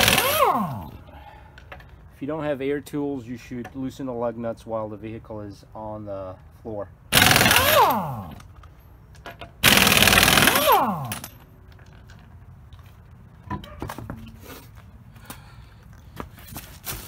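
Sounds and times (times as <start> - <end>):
impact wrench hammering: 0.0 - 0.9, 7.1 - 8.4, 9.6 - 11.4.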